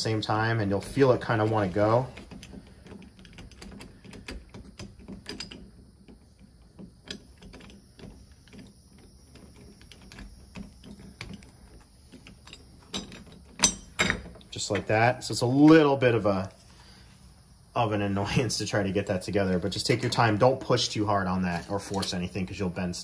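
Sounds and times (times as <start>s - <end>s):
door handle clicking and rattling: 2.1s - 11.5s.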